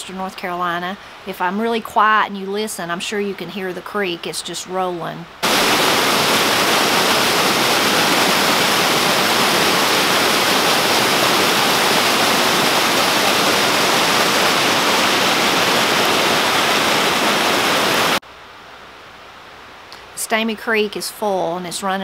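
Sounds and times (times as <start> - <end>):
creek water rushing over rocks: 5.4 - 18.2.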